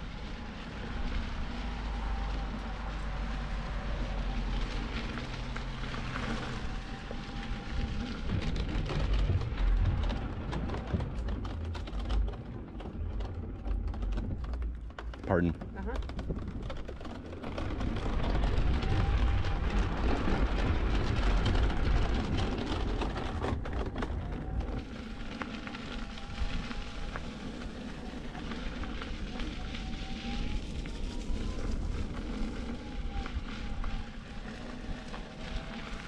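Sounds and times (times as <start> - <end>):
tyre noise: 1.0 - 36.0
wind rushing over microphone: 16.1 - 36.0.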